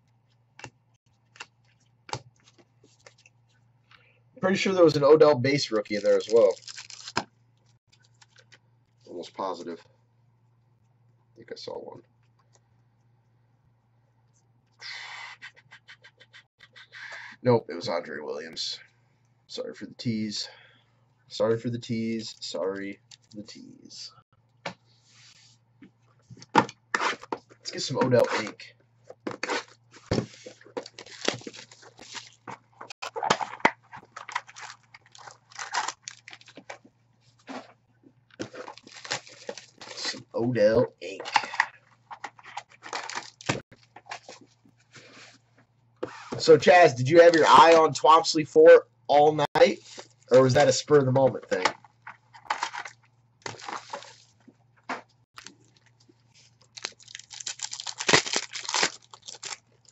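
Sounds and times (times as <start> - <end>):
foil and cardboard crinkling: 5.9 - 7.2, 29.4 - 36.8, 38.4 - 40.2, 42.3 - 44.4, 55.4 - 59.9.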